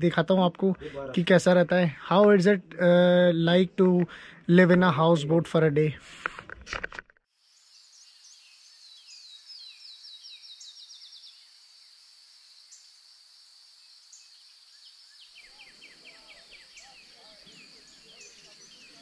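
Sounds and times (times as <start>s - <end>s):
faint birdsong: 7.4s - 19.0s.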